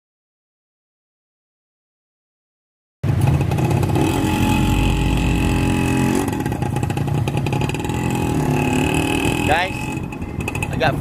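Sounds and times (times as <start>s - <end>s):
motorcycle engine revving: 3.0s - 11.0s.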